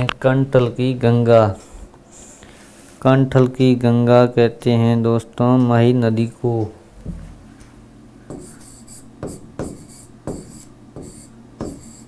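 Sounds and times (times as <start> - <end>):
stylus tapping and scratching: 8.3 - 12.0.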